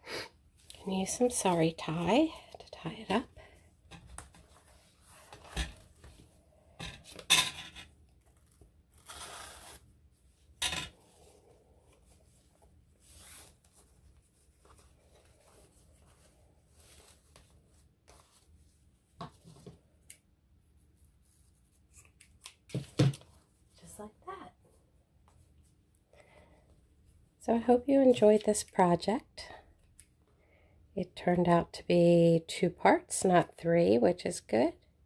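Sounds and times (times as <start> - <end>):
fabric and paper rustling: 11.1 - 19.9.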